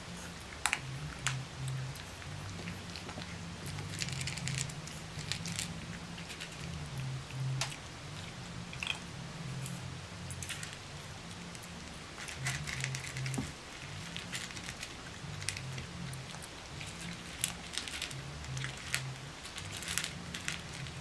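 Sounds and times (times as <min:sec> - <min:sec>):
puppies crunching dry kibble: 0:00.1 - 0:21.0.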